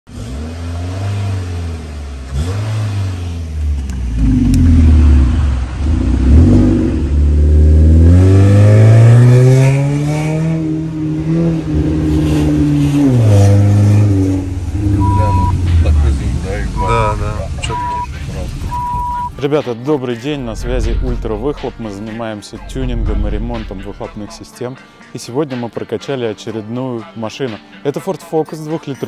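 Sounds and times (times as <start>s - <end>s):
car engine revving: 0.1s - 19.3s, 20.4s - 24.4s.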